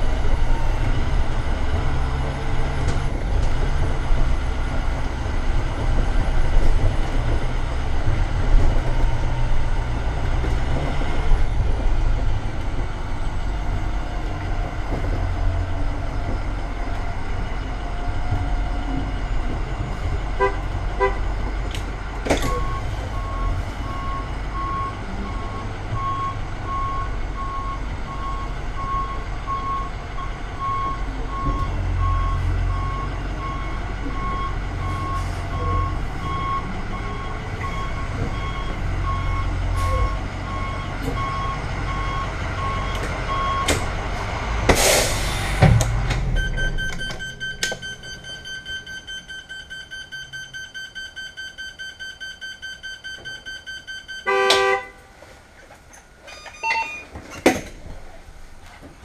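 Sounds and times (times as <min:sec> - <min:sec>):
diesel engine running: 0:00.0 - 0:48.7
air brake hiss: 0:44.7 - 0:45.6
reversing alarm beeping: 0:46.3 - 0:54.8, 0:56.3 - 0:57.1
pulsing electronic alarm: 0:46.4 - 0:54.5.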